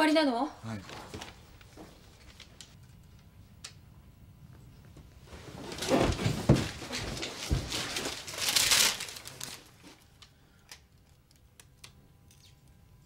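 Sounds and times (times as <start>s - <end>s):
paper rustling and crinkling: 5.3s - 10.1s.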